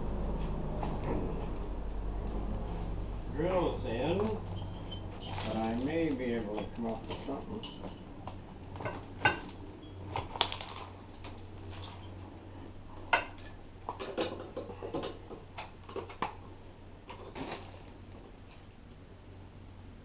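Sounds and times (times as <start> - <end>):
steady low hum: 0.0 - 20.0
metallic clinks and knocks: 4.2 - 10.0, 11.2 - 12.2, 13.1 - 15.3.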